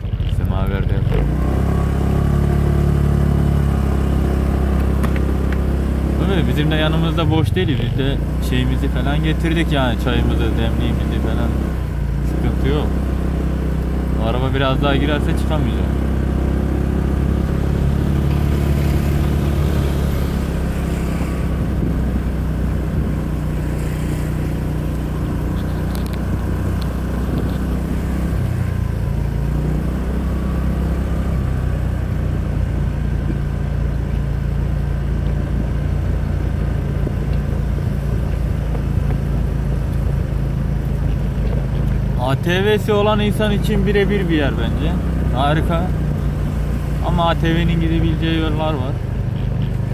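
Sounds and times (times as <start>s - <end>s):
scooter engine running: 0.0s - 49.9s.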